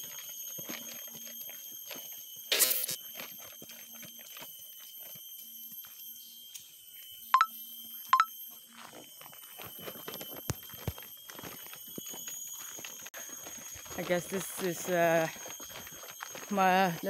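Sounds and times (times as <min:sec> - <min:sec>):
footsteps on dirt trail: 0:00.0 - 0:05.2, 0:08.7 - 0:17.0
high-pitched insect whine: 0:00.0 - 0:17.0.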